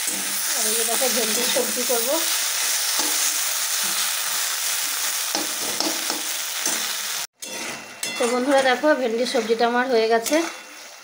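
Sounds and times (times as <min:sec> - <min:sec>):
vegetables sizzling in oil: 0:00.0 - 0:11.0
metal spatula scraping pan: 0:05.3 - 0:11.0.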